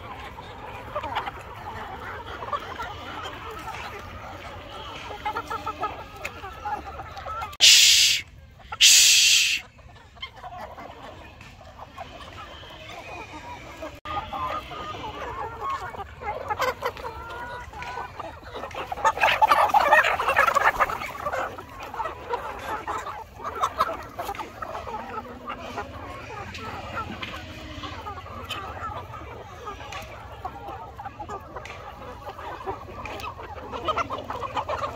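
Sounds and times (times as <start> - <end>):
hens clucking and squawking: 0.0 - 34.9
short loud noise bursts: 7.6 - 8.2, 8.8 - 9.6.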